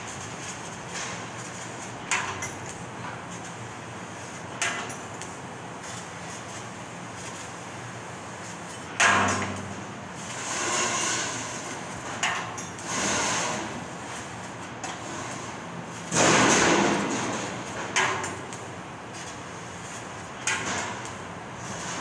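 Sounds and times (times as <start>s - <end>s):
laser cutter gas hissing: 12.8s - 14.4s.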